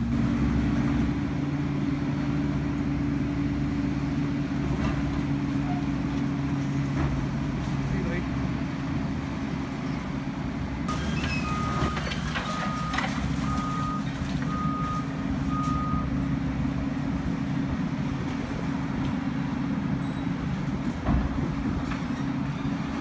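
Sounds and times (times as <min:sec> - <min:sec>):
excavator diesel engines droning: 0:00.0 - 0:23.0
reversing alarm beeping: 0:10.9 - 0:16.1.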